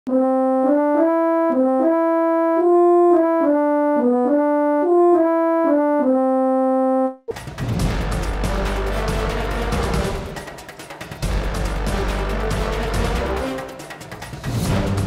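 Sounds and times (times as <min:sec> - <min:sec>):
simple single-tone melody: 0:00.1 - 0:07.3.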